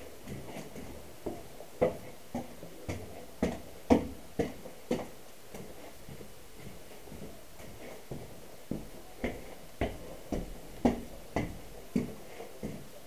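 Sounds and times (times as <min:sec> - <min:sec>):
footsteps on hard floor: 0:03.9 - 0:12.8.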